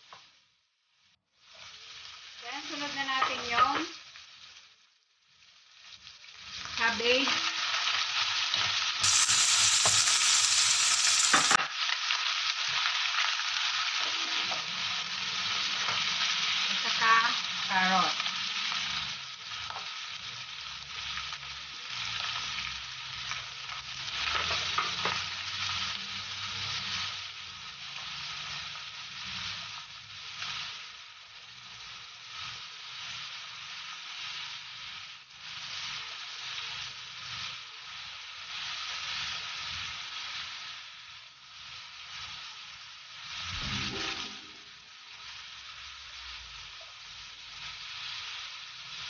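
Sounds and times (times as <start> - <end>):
vegetables sizzling in a wok: 0.0 - 49.0
spatula scraping wok: 6.6 - 11.7.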